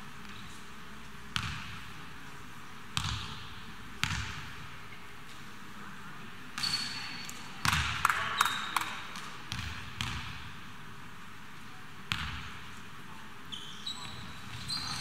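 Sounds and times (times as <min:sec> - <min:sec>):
steady background noise: 0:00.0 - 0:15.0
basketball bouncing in a hall: 0:01.3 - 0:02.0, 0:02.9 - 0:04.8, 0:06.6 - 0:10.7, 0:12.0 - 0:12.7.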